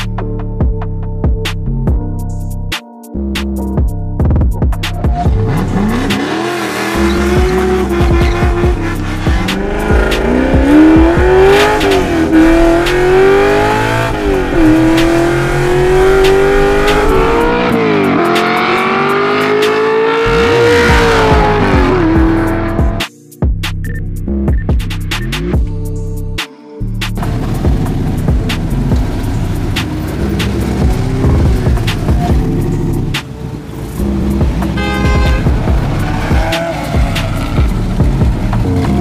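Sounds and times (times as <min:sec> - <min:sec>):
car engine accelerating hard: 0:05.0 - 0:23.0, 0:27.2 - 0:39.0.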